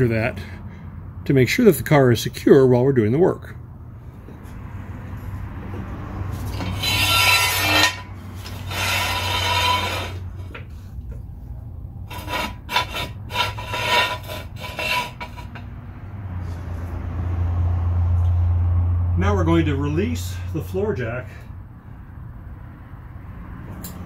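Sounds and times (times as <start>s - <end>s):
knocks and scrapes of jack stand: 5.6s - 11.3s, 12.0s - 15.8s
floor jack being pumped: 6.4s - 10.7s.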